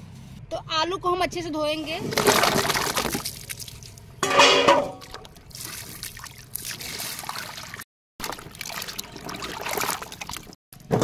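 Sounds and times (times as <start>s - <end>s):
water splashing in a plastic bucket: 2.0s - 11.0s.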